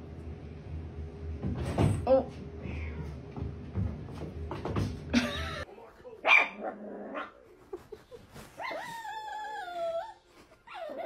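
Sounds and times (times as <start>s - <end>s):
dog barking: 6.2s - 7.3s.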